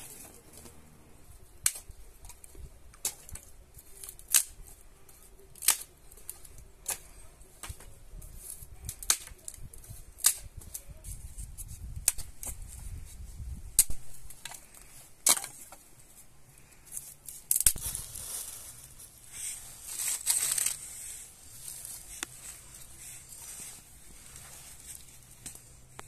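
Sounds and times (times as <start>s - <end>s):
clothing and dry leaves rustling: 0.0s - 26.0s
dry branches snapping: 1.5s - 15.8s, 16.7s - 26.0s
rustling brush: 6.2s - 26.0s.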